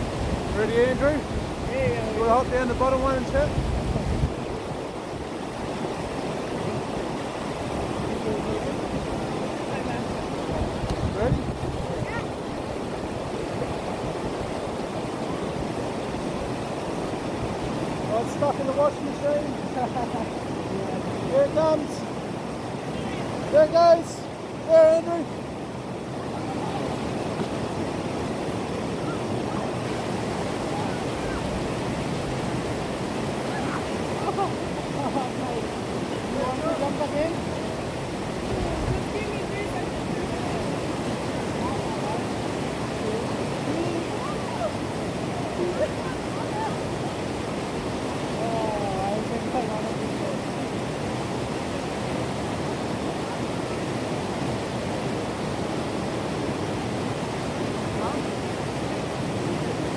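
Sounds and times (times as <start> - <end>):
water cascading over rocks: 0.0 - 59.9.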